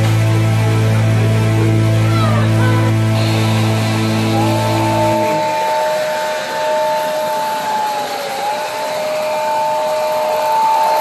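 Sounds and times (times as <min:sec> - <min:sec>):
rushing hiss: 0:03.1 - 0:09.3.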